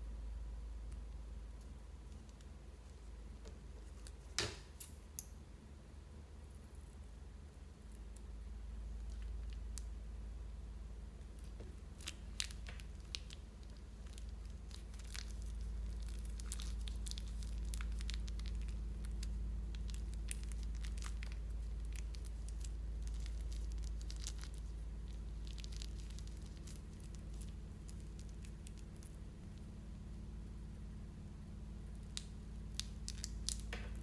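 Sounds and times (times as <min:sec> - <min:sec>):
steady low hum: 0:00.0 - 0:34.0
plastic bag crinkling: 0:11.5 - 0:29.2, 0:32.8 - 0:34.0.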